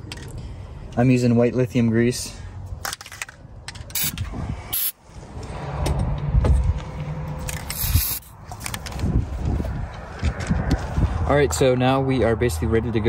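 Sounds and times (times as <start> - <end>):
aerosol can spraying: 7.7 - 8.3.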